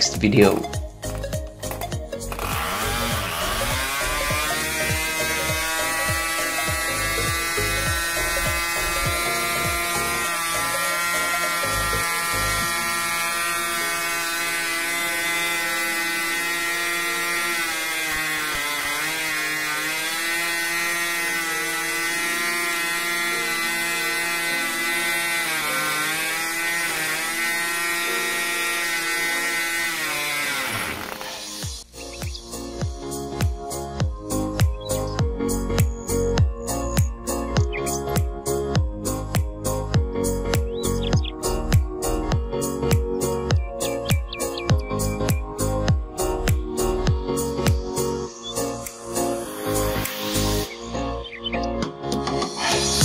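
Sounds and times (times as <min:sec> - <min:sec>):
model airplane engine buzzing: 0:02.2 - 0:31.9.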